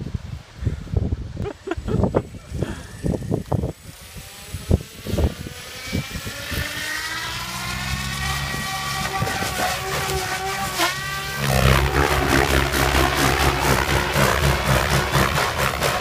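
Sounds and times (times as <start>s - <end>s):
rotor low buzz: 1.9s - 16.0s
electric motor whine: 2.4s - 16.0s
low thumps: 8.9s - 16.0s.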